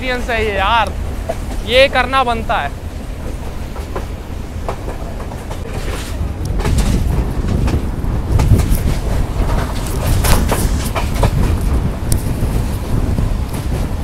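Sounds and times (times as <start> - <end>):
low rumble of train wheels: 0.0 - 14.0
wind buffeting microphone: 0.0 - 14.0
wheel clicks over rail joints: 3.2 - 14.0.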